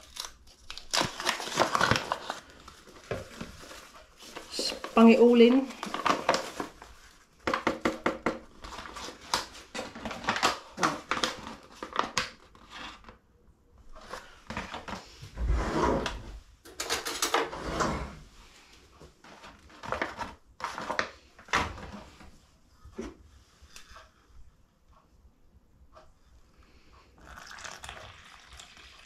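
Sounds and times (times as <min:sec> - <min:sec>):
paper packet crinkling: 0:00.0 - 0:07.3, 0:08.5 - 0:13.1.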